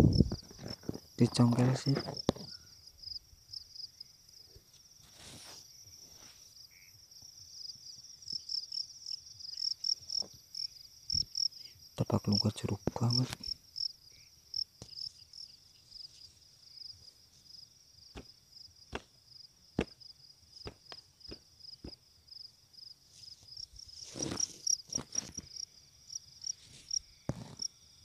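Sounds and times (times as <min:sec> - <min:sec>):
cricket chirping: 0:00.0 - 0:28.0
rustling in dry stubble: 0:04.9 - 0:06.6, 0:15.0 - 0:17.5, 0:23.0 - 0:25.6, 0:26.5 - 0:27.6.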